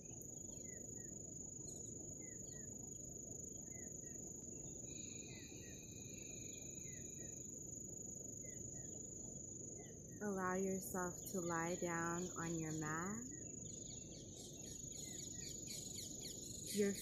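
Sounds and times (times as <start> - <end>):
insect trill: 0.0 - 17.0
low background hiss: 0.0 - 17.0
bird chirps: 9.8 - 17.0.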